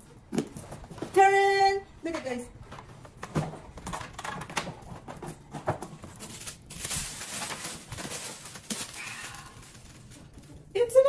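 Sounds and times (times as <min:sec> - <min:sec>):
packaging rustling: 0:03.1 - 0:10.7.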